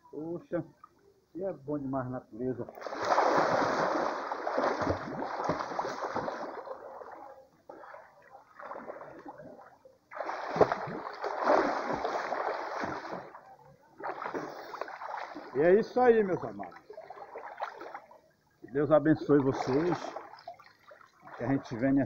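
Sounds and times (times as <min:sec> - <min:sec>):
person splashing and swimming: 0:02.7 - 0:15.6, 0:16.5 - 0:18.2, 0:19.3 - 0:21.8
water slapping: 0:02.7 - 0:22.0.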